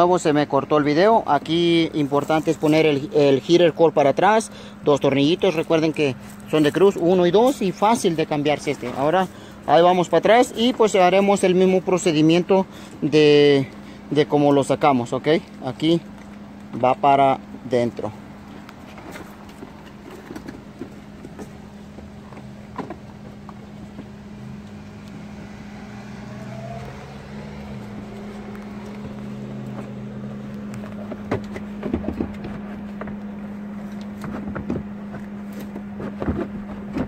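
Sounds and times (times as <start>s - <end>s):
vehicle engine hum: 0.0s - 37.0s
plastic knocks and clatter: 31.0s - 33.2s.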